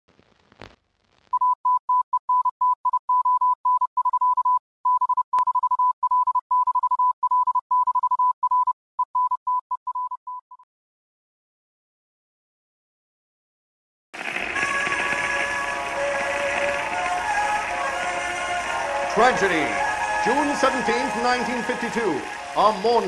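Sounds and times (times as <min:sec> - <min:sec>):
morse code beeps: 0:01.4 - 0:10.6.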